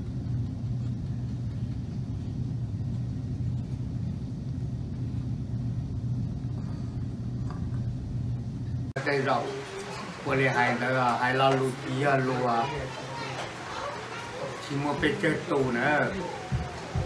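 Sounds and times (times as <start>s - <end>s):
low background rumble: 0.0s - 9.0s
low hum: 0.0s - 9.0s.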